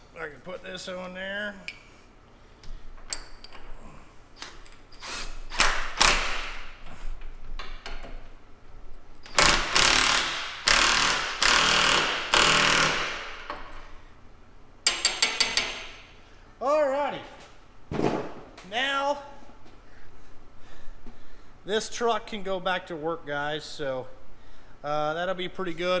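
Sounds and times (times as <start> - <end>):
ratcheting wrench: 9.2 - 13.5.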